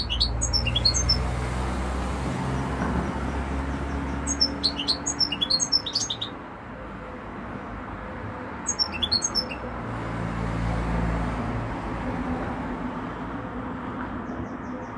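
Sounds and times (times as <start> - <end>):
finches chirping: 0.0 - 1.3, 2.6 - 6.4, 8.7 - 9.6.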